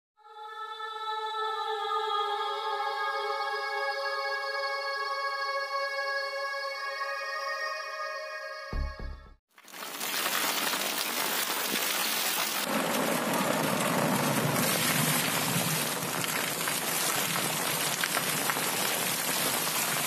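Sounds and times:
water splashing from drain spout: 9.6 - 20.0
heavy rain pouring: 9.7 - 20.0.

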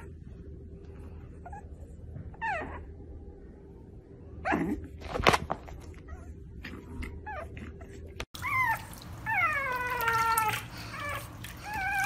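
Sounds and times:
puppy whining: 1.1 - 3.4, 5.8 - 12.0.

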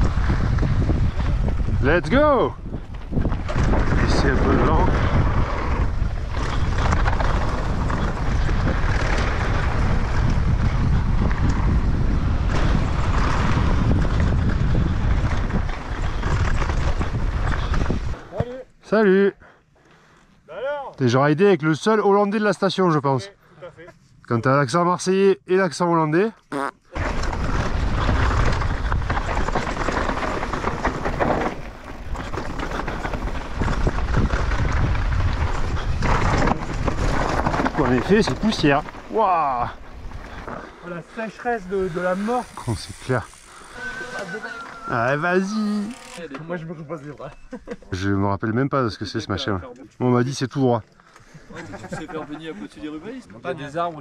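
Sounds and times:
wind buffeting microphone: 0.0 - 18.4, 27.0 - 40.8
bike rattling: 0.0 - 18.8, 26.9 - 46.6
tyres crunching over dirt and stones: 27.0 - 42.6.

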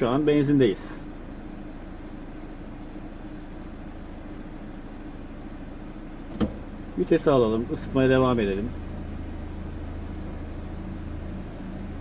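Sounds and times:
sharp click: 2.4 - 5.5.

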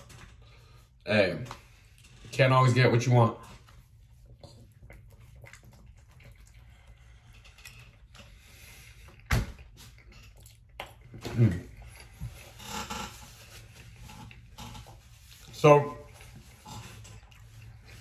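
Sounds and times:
person chewing crunchy food: 4.2 - 18.0.

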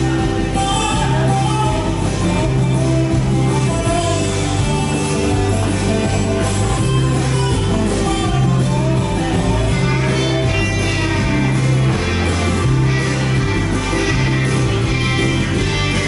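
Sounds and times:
repeating bass line: 0.0 - 16.0
song with guitar: 0.0 - 16.0.

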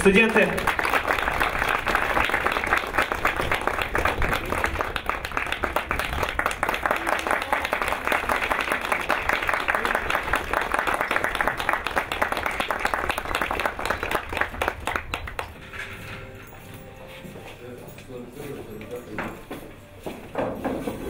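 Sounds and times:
crowd applauding: 0.0 - 15.7.

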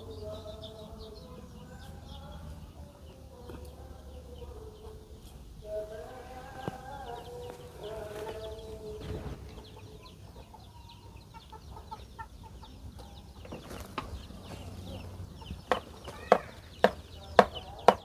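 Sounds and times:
chickens clucking: 0.0 - 18.0
sharp knocks: 15.6 - 18.0.

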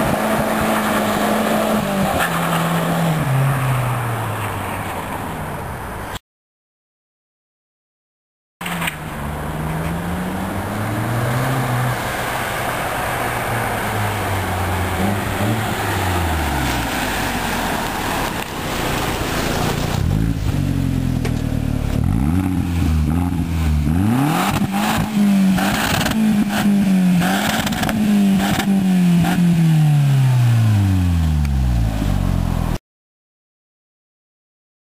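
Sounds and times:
car engine revving: 8.6 - 32.8.

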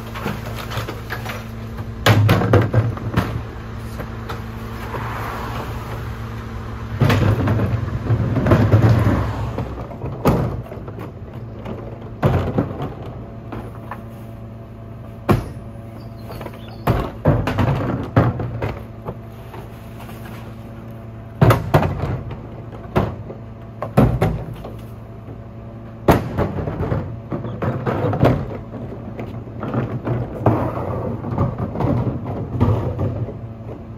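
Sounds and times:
plastic bins banging and clattering: 0.0 - 5.1, 6.9 - 14.1, 15.2 - 20.8, 21.4 - 25.0, 26.0 - 33.9
garbage truck idling: 0.0 - 33.9.

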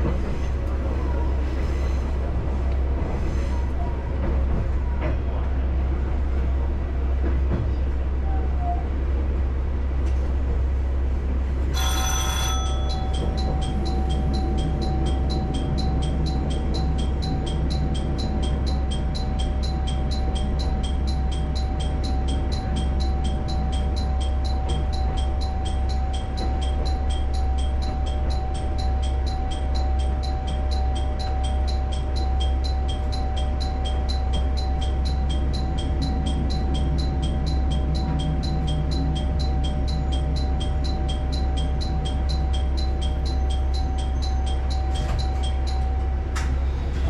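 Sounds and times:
diesel railcar rumbling: 0.0 - 47.0
high-pitched ticking: 12.7 - 46.0.

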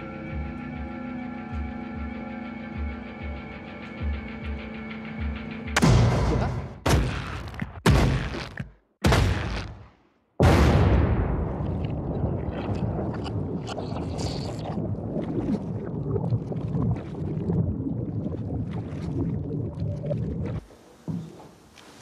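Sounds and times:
low rumble with crackles: 10.6 - 22.0.

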